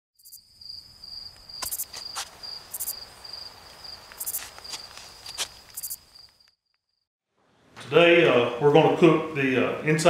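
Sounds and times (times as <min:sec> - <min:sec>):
cricket trilling: 0:00.2 - 0:07.0
high insect chirp pulsing: 0:00.2 - 0:07.1.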